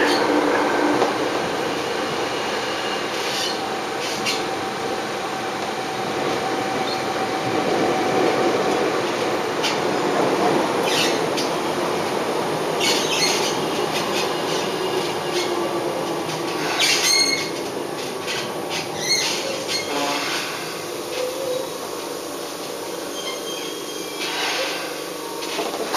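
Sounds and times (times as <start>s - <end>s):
train wheel rumble in tunnel: 0.0s - 25.9s
high wheel squeals: 23.0s - 25.0s.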